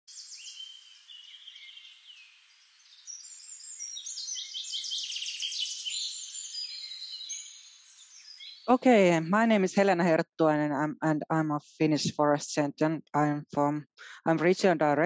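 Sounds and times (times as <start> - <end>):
songbirds chirping and trilling: 0.1 - 8.8.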